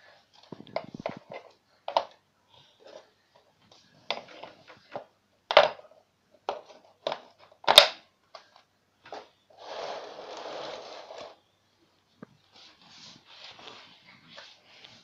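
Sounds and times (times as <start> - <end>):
scraping rustle: 9.6 - 11.4.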